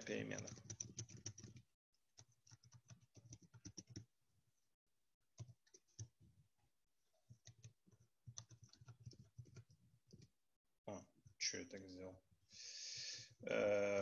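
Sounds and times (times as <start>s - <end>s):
faint keyboard typing: 0.0s - 4.1s, 5.4s - 6.2s, 7.3s - 10.3s.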